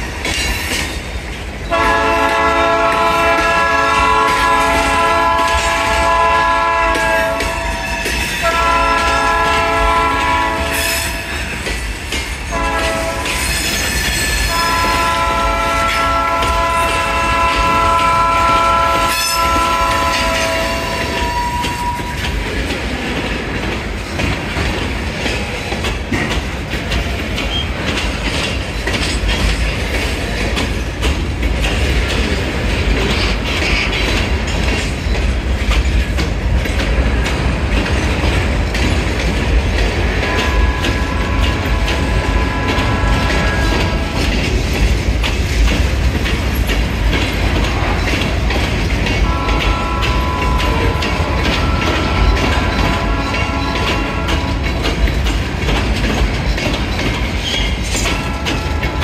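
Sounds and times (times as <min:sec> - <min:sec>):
freight cars rumbling on rails: 0:00.0 - 0:59.0
locomotive air horn blasts: 0:01.7 - 0:11.4, 0:12.5 - 0:13.5, 0:14.5 - 0:22.2, 0:40.2 - 0:44.3, 0:49.2 - 0:54.7, 0:58.1 - 0:59.0.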